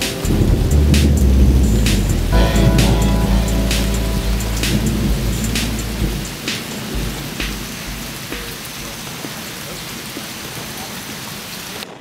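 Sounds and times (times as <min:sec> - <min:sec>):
thunder rumble: 0:00.0 - 0:08.9
steady rain: 0:00.0 - 0:12.0.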